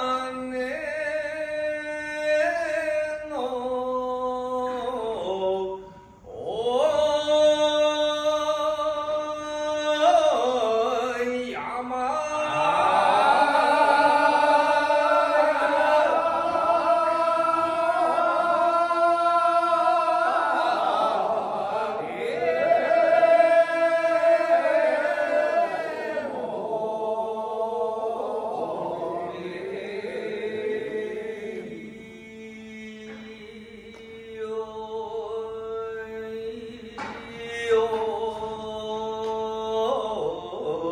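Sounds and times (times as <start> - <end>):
men chanting: 6.3 - 33.9.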